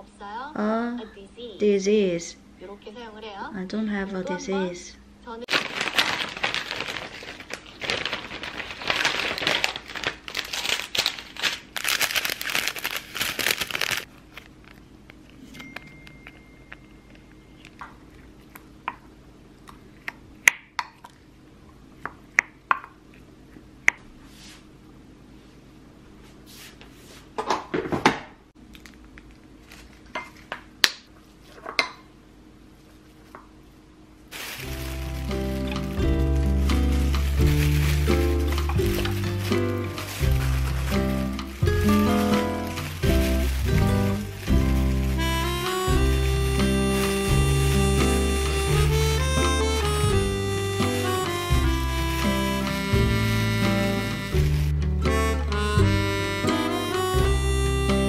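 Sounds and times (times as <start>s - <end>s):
plastic packaging crinkling: 5.5s - 14.9s, 34.3s - 49.6s.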